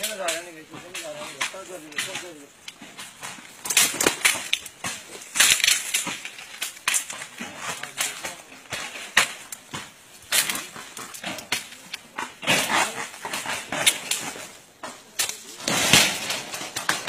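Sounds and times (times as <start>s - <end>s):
bamboo fencing cracking and snapping: 0.0s - 17.0s.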